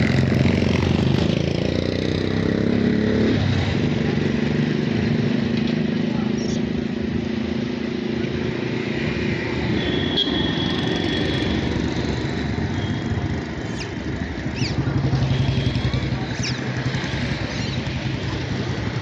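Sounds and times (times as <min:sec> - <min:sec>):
traffic noise: 0:00.0 - 0:19.0
motorcycle engine running: 0:11.0 - 0:19.0.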